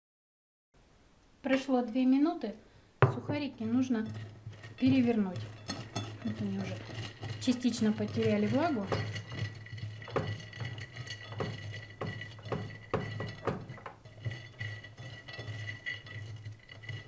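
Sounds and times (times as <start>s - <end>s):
bread cubes rattling on glass: 3.7s - 17.0s.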